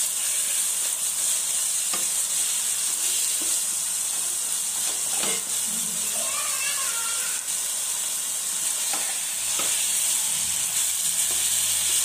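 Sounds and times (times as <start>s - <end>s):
spatula scraping a pan: 0.0s - 6.3s
chicken sizzling in a pan: 0.0s - 12.0s.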